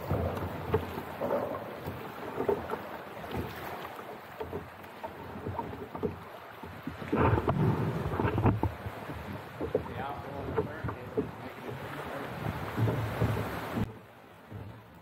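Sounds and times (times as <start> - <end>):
water lapping against kayak hull: 0.0 - 15.0
wind on microphone: 6.9 - 14.0.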